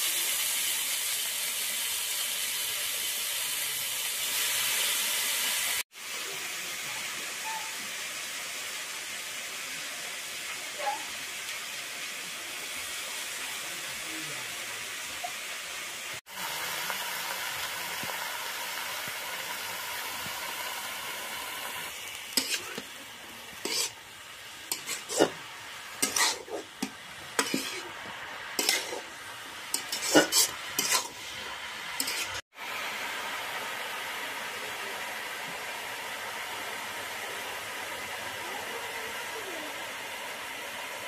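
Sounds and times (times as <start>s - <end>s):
mushrooms sizzling in pan: 0.0s - 41.0s
spatula scraping metal pan: 22.3s - 22.9s, 23.6s - 24.0s, 24.7s - 25.4s, 26.0s - 28.0s, 28.6s - 32.4s.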